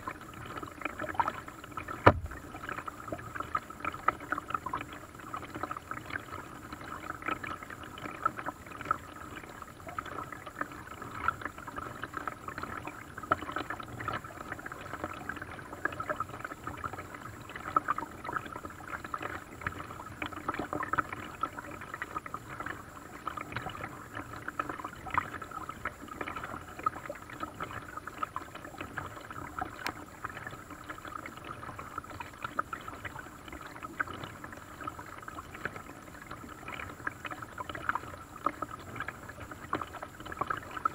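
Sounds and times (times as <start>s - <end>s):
water lapping against boat hull: 0.0s - 40.9s
knocks on boat: 2.0s - 2.4s.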